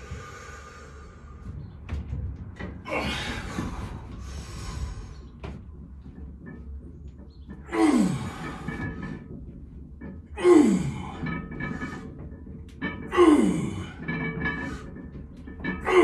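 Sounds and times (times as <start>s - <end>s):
lifter breathing hard: 0.0s - 1.5s, 2.9s - 5.4s.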